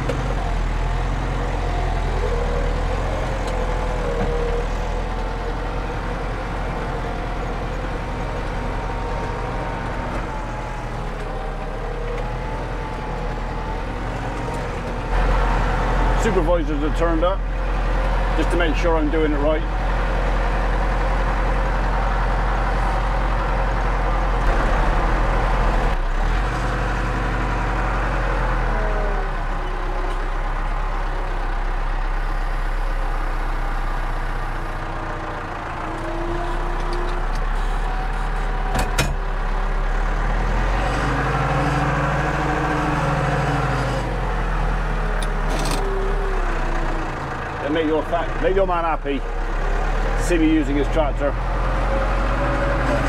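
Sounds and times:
tractor engine running: 0.0s - 53.0s.

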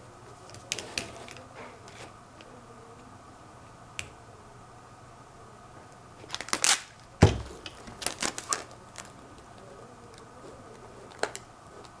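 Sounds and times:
crackly clicks: 5.9s - 12.0s
tape crinkly scrapes: 6.2s - 12.0s
box thump: 7.2s - 7.6s.

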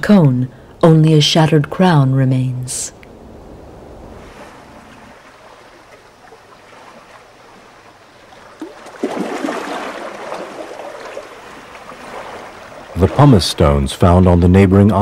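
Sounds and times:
water washing over rocks: 5.0s - 13.6s.

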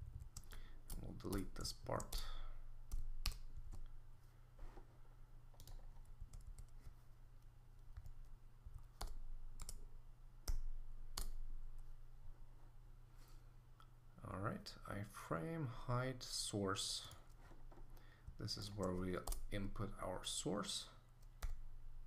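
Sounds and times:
faint low hum: 0.0s - 22.0s
computer keyboard and mouse clicks: 0.1s - 3.9s, 5.6s - 6.9s, 7.9s - 9.8s, 10.4s - 11.9s.

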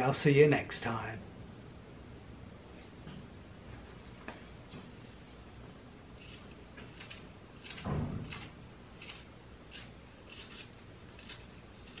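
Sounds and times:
carving knife shaving wood: 6.2s - 12.0s
low thump: 7.8s - 8.4s.

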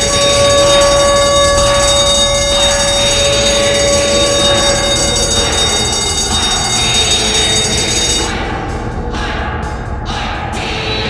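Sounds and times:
goal horn blowing: 0.0s - 8.3s.

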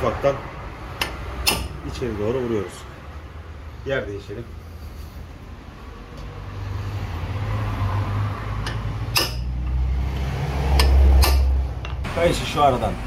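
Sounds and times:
hammer striking metal punch: 1.0s - 1.8s, 8.6s - 9.7s, 10.8s - 12.1s.

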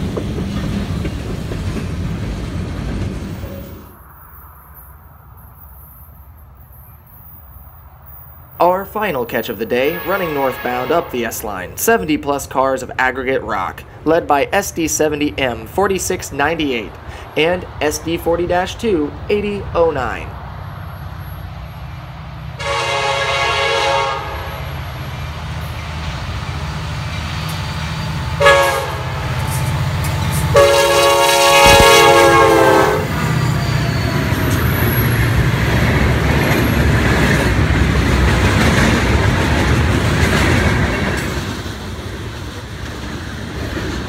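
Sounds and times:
wheels clattering on rails: 0.0s - 3.9s, 33.0s - 44.0s
locomotive engines rumbling: 0.0s - 44.0s
train air horn blasts: 9.8s - 11.3s, 22.6s - 24.7s, 28.3s - 29.7s, 30.3s - 33.3s.

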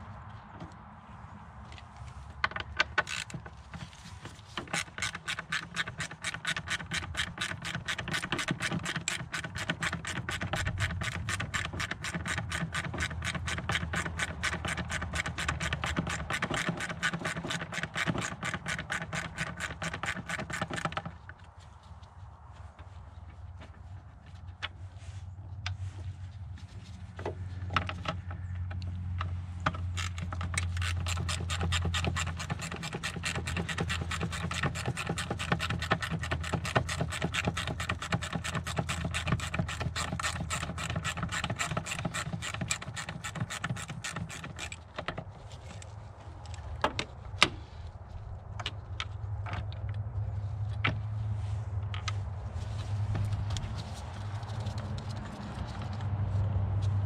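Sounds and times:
rapid mechanical clicking: 2.4s - 21.2s, 27.7s - 45.9s.

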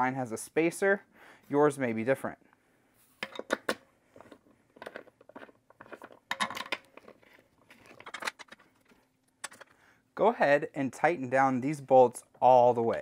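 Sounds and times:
clicks knocks and scrapes of handling: 3.2s - 9.8s.

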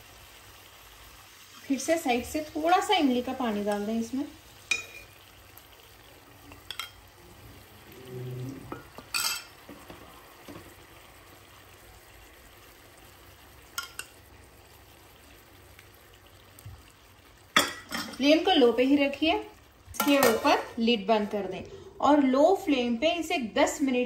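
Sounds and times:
faint sizzle: 0.0s - 24.0s
metal spoon clinking on pot: 4.7s - 5.1s, 6.6s - 7.0s, 9.1s - 9.5s, 13.8s - 14.1s.

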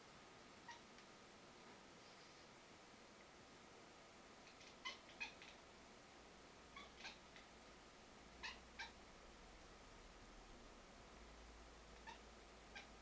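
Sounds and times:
cat chattering: 4.5s - 5.6s, 6.8s - 7.5s, 8.4s - 9.0s, 12.0s - 12.9s.

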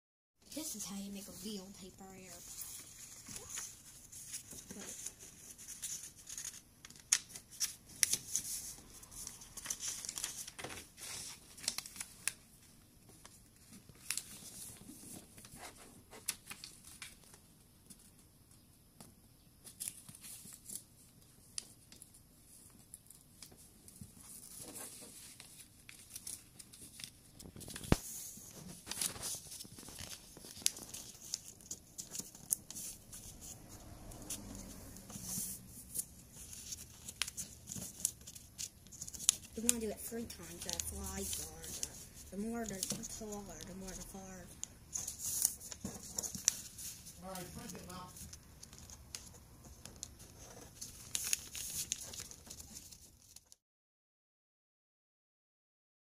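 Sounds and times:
paper rustling and crinkling: 0.6s - 18.2s, 19.6s - 53.6s
paper creases scraping: 27.7s - 53.0s.

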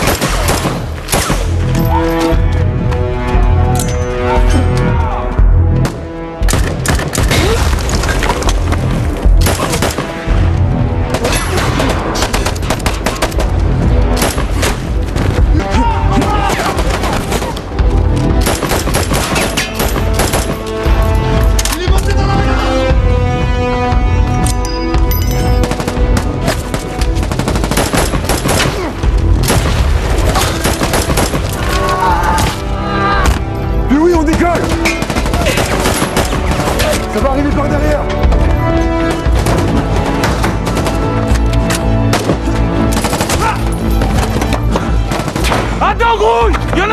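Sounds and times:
rapid gunfire: 0.0s - 1.5s, 9.4s - 10.3s, 18.4s - 20.6s, 25.6s - 28.9s, 29.5s - 31.5s, 34.3s - 37.0s, 42.1s - 45.8s
dramatic film music: 0.0s - 46.9s
rifle shots: 25.6s - 28.8s.

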